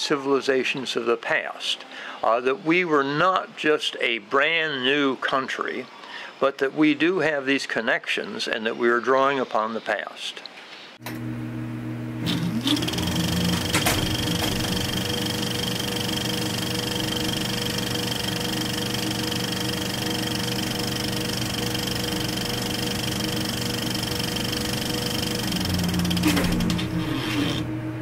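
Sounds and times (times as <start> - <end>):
film projector running: 12.2 - 27.7
thin high whine: 12.2 - 28.0.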